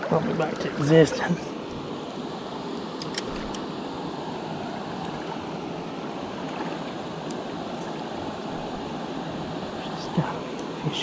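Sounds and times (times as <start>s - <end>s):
water sloshing around wading legs: 3.0s - 3.7s, 4.6s - 9.4s.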